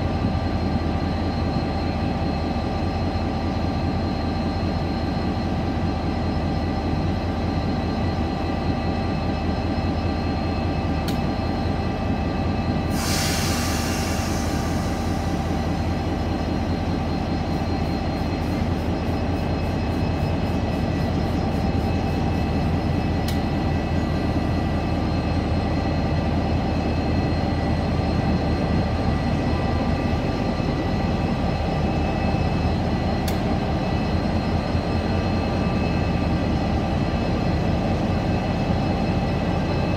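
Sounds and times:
locomotive engine idling drone: 0.0 - 39.9
sharp burst of hissing: 12.9 - 15.2.

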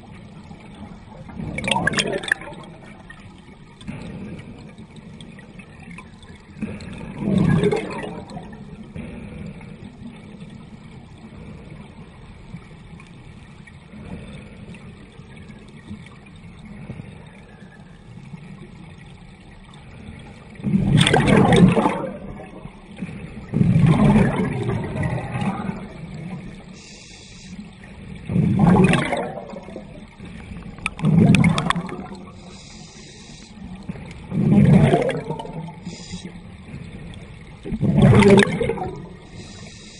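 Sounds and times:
underwater bubble bursts: 0.0 - 39.9
low underwater rushing hiss: 23.0 - 39.9.

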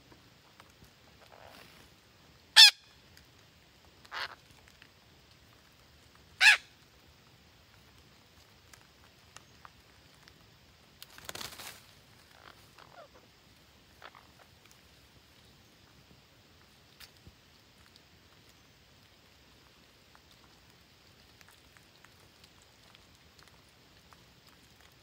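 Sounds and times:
parakeets squawking: 2.6 - 2.8, 6.4 - 6.6.

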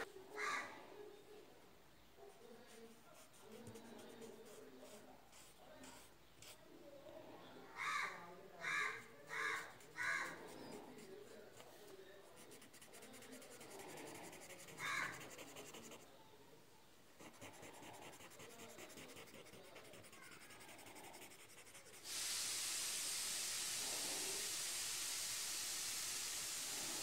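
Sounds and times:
cotton swab rubbing on paper: 2.6 - 6.6, 12.4 - 16.0, 17.2 - 22.1
loud steady hiss: 21.9 - 27.0.

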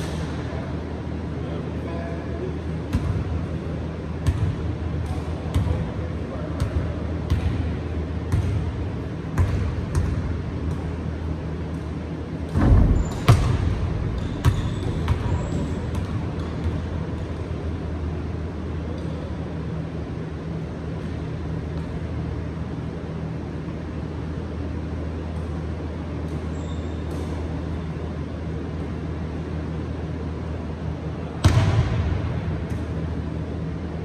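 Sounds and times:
steady low hum: 0.0 - 34.0
basketball bouncing on hardwood floor: 9.4 - 10.9, 12.6 - 16.8.

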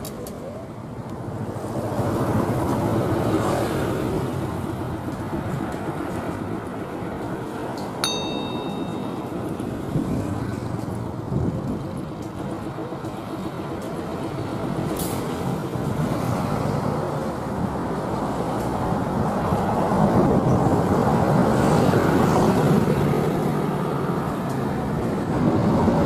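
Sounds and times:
bright multi-tone chime: 8.0 - 9.4.

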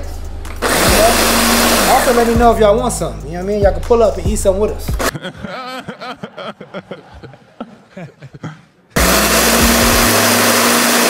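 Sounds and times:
electric blender grinding: 0.6 - 2.4, 9.0 - 11.0.

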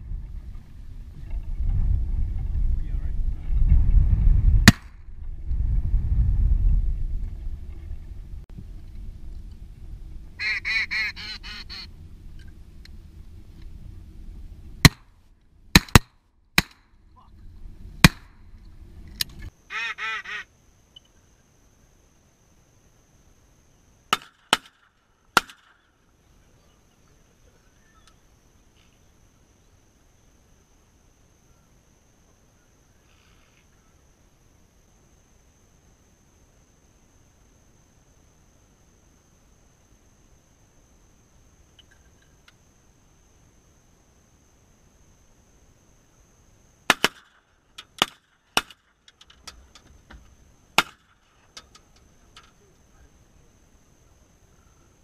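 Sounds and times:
loud shotgun shots: 4.6 - 5.0, 46.9 - 47.3
shotgun shots: 4.6 - 5.0, 15.8 - 16.8, 46.9 - 47.4, 50.8 - 51.1.

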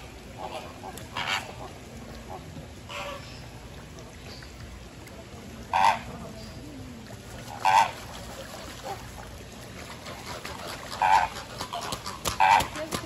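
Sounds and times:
goose-like bird honks: 7.6 - 8.0, 10.4 - 12.8.

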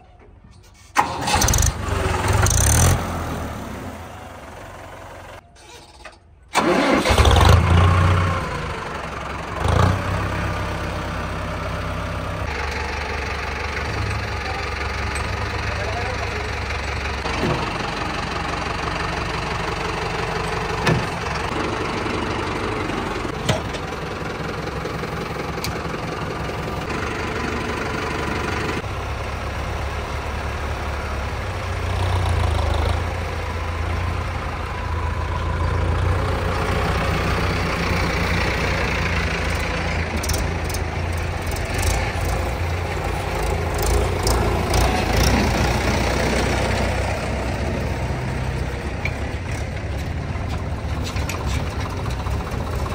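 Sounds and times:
diesel engine running: 0.9 - 52.9.

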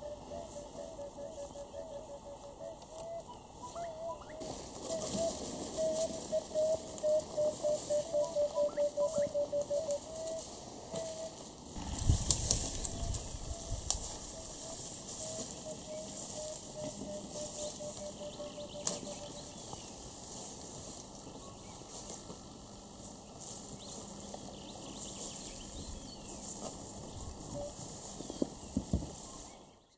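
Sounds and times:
rustling: 10.4 - 17.8.

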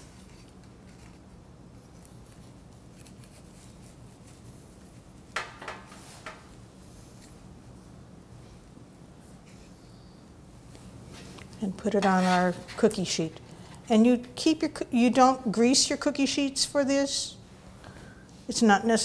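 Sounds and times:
metal spatula scraping dough: 11.9 - 13.2.

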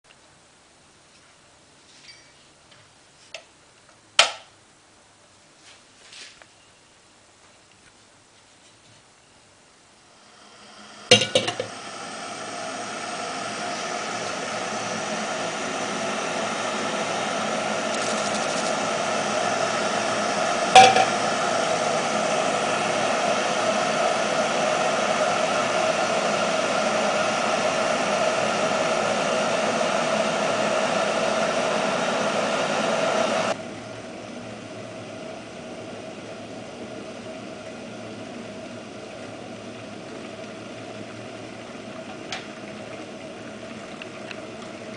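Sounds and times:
kettle hissing: 9.9 - 33.6, 35.4 - 44.9.

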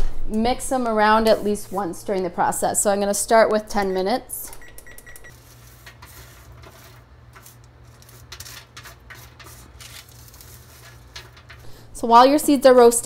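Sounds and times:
utensil scraping seeds on baking sheet: 1.0 - 2.3, 5.3 - 12.5.

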